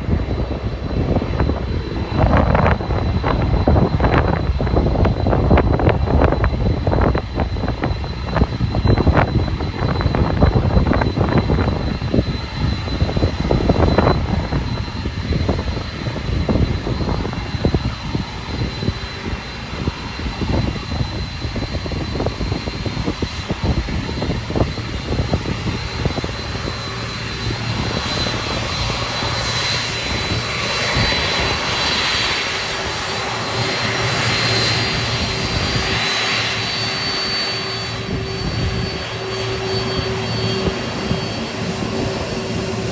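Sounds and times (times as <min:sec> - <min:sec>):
jet engines whining: 0:00.0 - 0:42.9
wind rumbling on microphone: 0:00.0 - 0:42.9.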